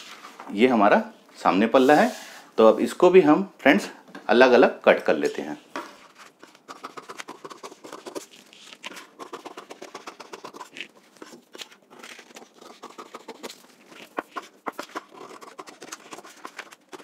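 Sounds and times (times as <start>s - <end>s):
paper crunching: 6.1s - 17.0s
scissors snipping paper: 6.5s - 17.0s.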